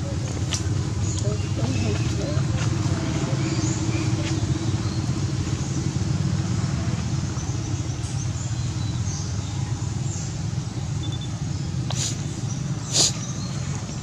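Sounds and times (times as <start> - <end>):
low engine rumble: 0.0 - 14.0
faint high chirps: 11.0 - 11.4.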